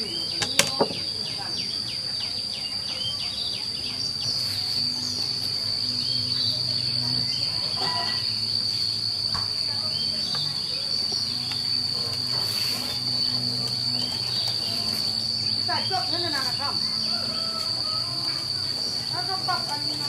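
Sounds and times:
high-pitched insect trill: 0:00.0 - 0:20.0
low hum: 0:04.2 - 0:20.0.

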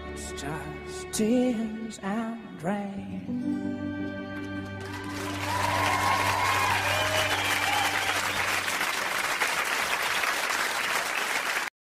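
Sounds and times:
audience applauding: 0:04.4 - 0:11.7.

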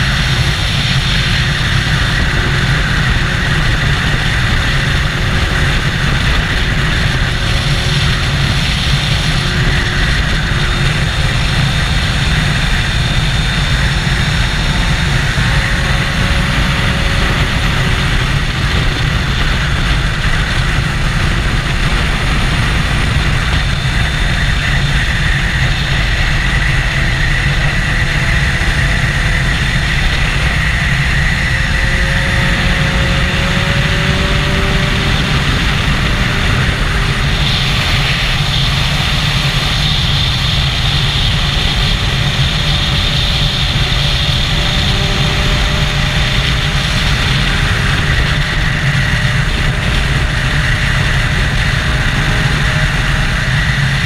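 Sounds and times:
motorcycle engine cruising: 0:00.0 - 0:54.0
wind noise on microphone: 0:00.0 - 0:54.0.

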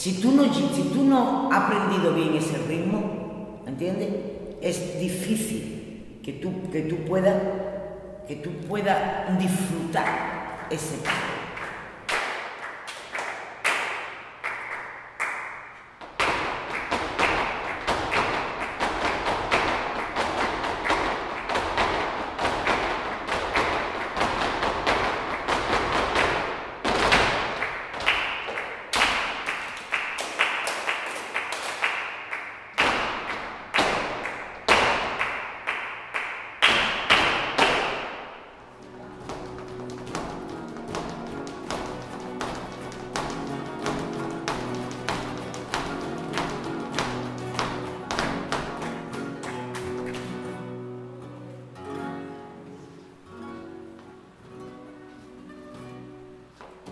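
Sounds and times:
rhythmic hand clapping: 0:09.9 - 0:50.8
feet stamping: 0:15.9 - 0:29.9, 0:36.7 - 0:50.4.

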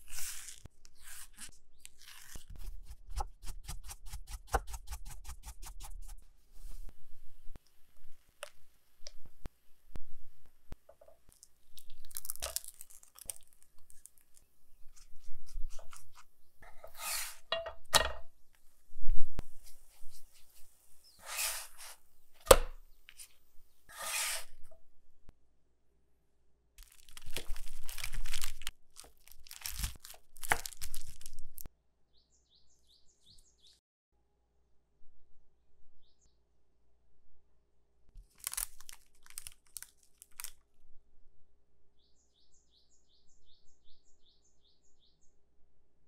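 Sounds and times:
food crunching and tearing: 0:00.0 - 0:03.0, 0:11.3 - 0:16.1, 0:26.8 - 0:31.7, 0:38.2 - 0:40.6.

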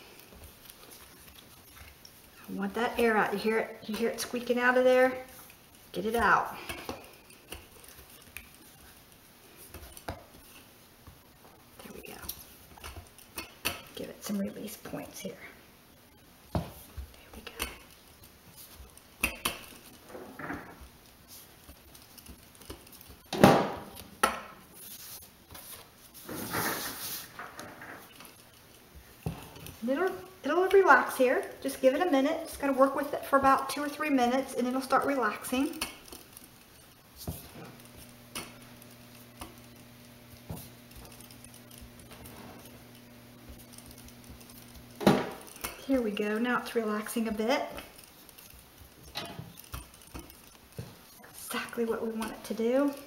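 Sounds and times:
rolling pin rolling dough: 0:00.0 - 0:53.0.

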